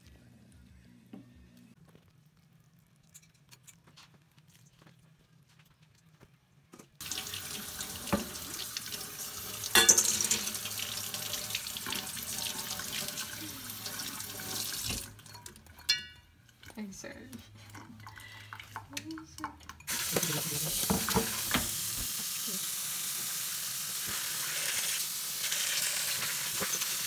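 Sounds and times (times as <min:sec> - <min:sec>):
tap water running into sink: 0:07.0 - 0:15.6, 0:19.9 - 0:27.0.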